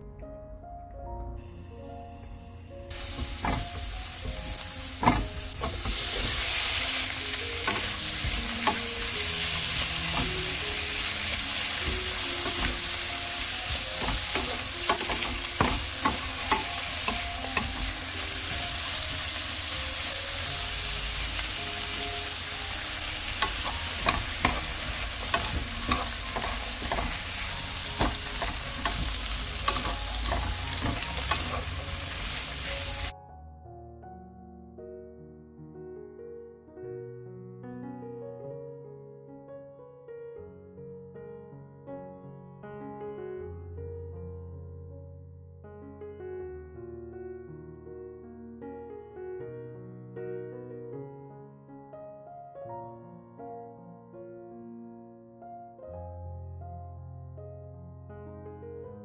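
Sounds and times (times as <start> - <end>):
spatula clicking and scraping pan: 2.9 - 6.5, 7.6 - 10.6, 11.8 - 13.1, 13.7 - 18.1, 23.2 - 33.1
garlic and cucumber sizzling in oil: 2.9 - 33.1.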